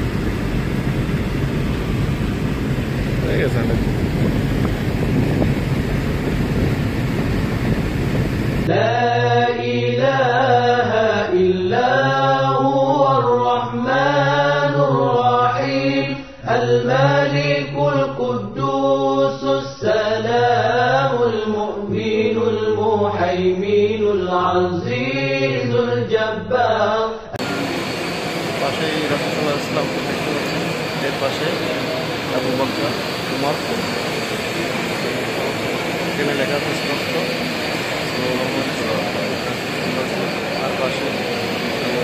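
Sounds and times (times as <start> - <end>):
car road and wind noise: 0.0 - 8.7
person singing a devotional chant: 8.7 - 27.5.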